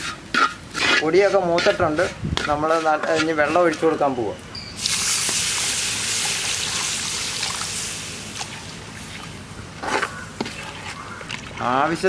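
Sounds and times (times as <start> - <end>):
water hissing in hot oil: 4.8 - 9.3.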